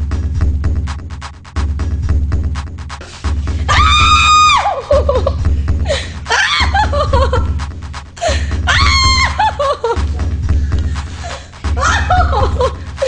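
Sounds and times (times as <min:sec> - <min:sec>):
low droning music: 0:00.0 - 0:13.0
woman screaming: 0:03.7 - 0:05.0, 0:06.3 - 0:07.0, 0:08.7 - 0:09.8, 0:11.8 - 0:12.6
wavering laughter: 0:04.6 - 0:07.6, 0:08.2 - 0:10.3, 0:11.1 - 0:13.0.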